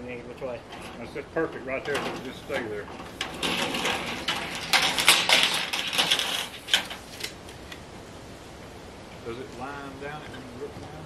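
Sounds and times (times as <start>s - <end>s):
sheet metal clattering on roof: 0.6s - 7.1s.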